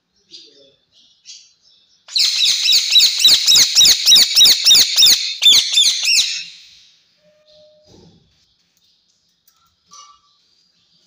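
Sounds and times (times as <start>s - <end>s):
faint bird chirps: 0.0s - 11.0s
parakeet screeching: 2.1s - 6.8s.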